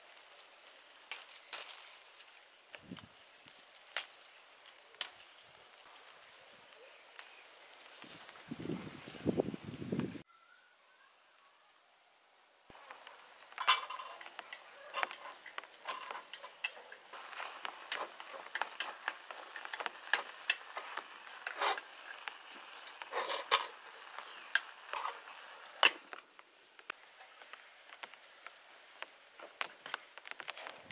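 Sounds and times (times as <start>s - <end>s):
chopsticks scraping metal pot: 13.5s - 26.0s.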